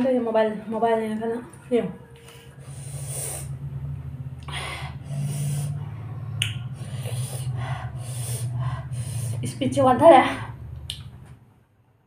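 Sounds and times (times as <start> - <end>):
low steady hum: 0.0 - 12.0
person breathing and eating: 2.2 - 3.6, 4.4 - 5.8, 6.6 - 9.4
sniffs through nose: 2.6 - 3.5, 6.8 - 9.4.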